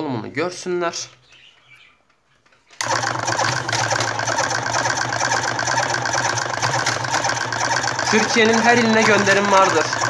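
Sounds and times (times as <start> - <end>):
electric motor hum: 2.8 - 10.0
fast mechanical clatter: 2.8 - 10.0.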